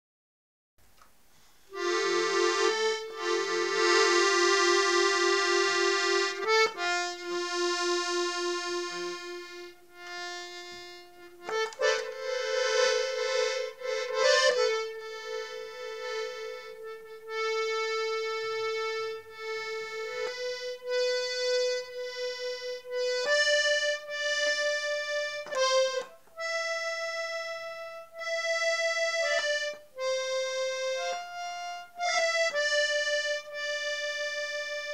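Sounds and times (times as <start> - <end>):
piano accordion playing slow tune: 1.7 - 34.9.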